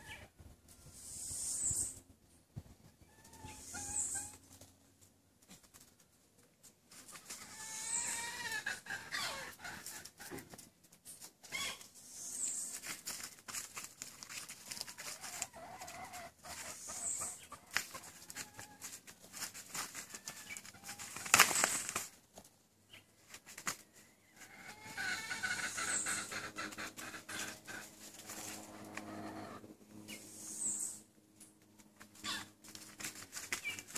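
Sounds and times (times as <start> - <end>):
goat calls: 7.4 - 10.0, 24.6 - 28.0, 32.2 - 32.5
goats scuffling: 9.6 - 25.9, 31.6 - 33.9.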